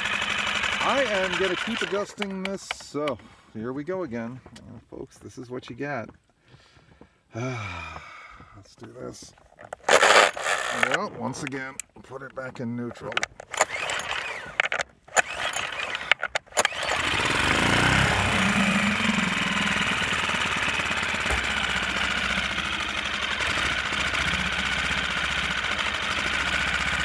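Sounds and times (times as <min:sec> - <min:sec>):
outboard engine idling: 0:00.0 - 0:02.1, 0:17.0 - 0:27.0
starter cord pulls: 0:00.0 - 0:03.2, 0:08.8 - 0:27.0.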